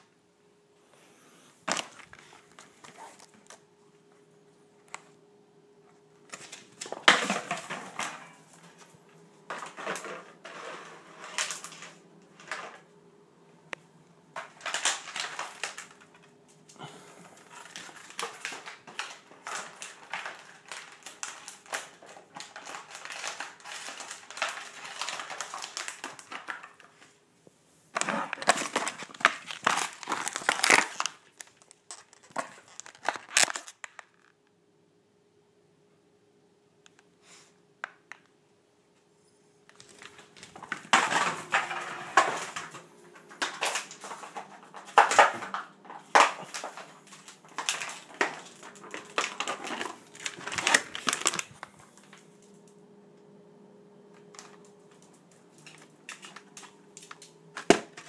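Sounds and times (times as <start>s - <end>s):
plastic bottle crinkling: 1.6s - 3.6s, 6.2s - 12.9s, 14.3s - 27.2s, 27.9s - 34.4s, 39.7s - 52.6s, 54.2s - 58.0s.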